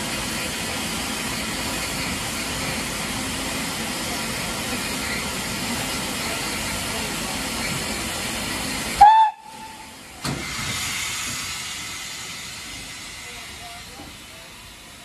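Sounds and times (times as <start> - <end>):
steam hissing: 0.0 - 15.0
steam whistle blast: 9.0 - 9.9.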